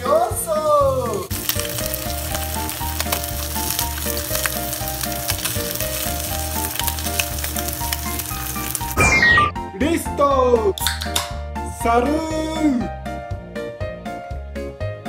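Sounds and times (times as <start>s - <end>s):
bacon sizzling in pan: 1.0s - 9.4s.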